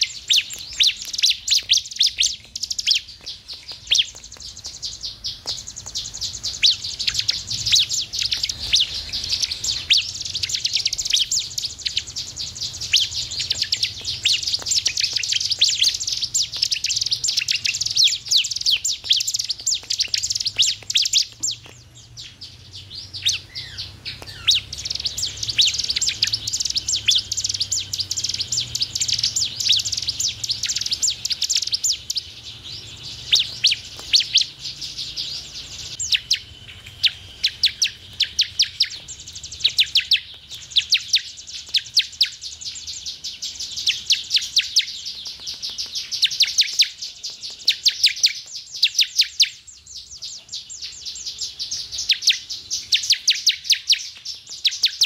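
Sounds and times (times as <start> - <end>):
bird singing high sharp chirps: 0.0 - 55.0.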